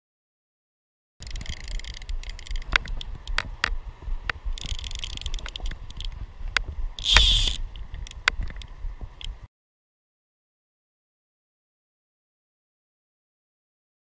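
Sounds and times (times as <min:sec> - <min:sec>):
fishing line clicking and rubbing: 0:01.2 - 0:09.4
wind rumble on microphone: 0:01.2 - 0:09.5.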